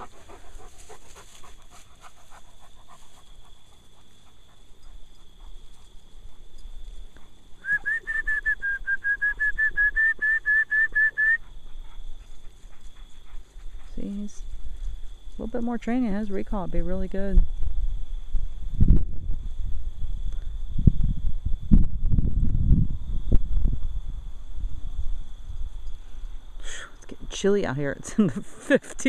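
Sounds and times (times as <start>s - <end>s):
dog panting: 0.0s - 6.5s, 11.4s - 14.1s.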